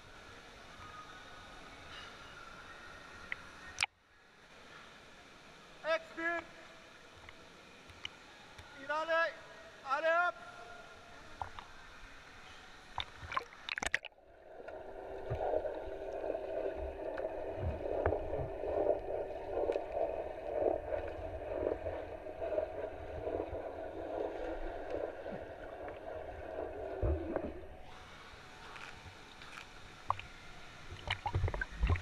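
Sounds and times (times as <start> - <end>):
water splashing: 12.8 - 32.0
muffled underwater churning: 13.0 - 28.4, 30.9 - 32.0.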